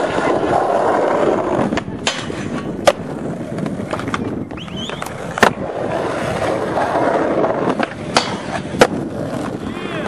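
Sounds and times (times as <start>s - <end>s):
skateboard clacks: 0.0s - 10.0s
skateboard wheels rolling on concrete: 0.0s - 10.0s.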